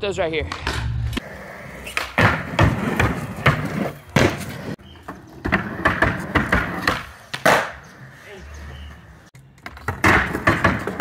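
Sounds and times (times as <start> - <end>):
skateboard wheels rolling: 0.6 - 11.0
skateboard clacking on ramp: 9.6 - 11.0.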